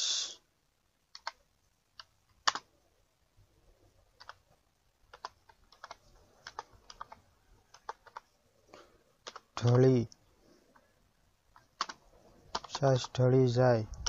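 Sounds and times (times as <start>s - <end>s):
computer keyboard typing: 1.1s - 1.4s, 2.0s - 2.6s, 4.2s - 4.4s, 5.1s - 8.3s, 9.2s - 10.0s, 11.5s - 13.2s.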